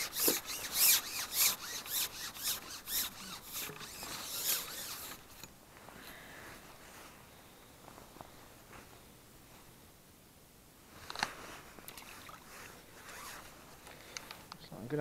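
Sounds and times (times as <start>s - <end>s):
fishing pole rubbing and rasping: 0.0s - 5.5s, 11.9s - 13.5s.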